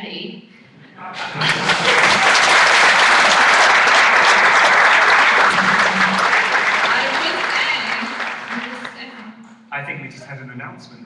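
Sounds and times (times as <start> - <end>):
audience applauding loudly: 1.1 - 9.2.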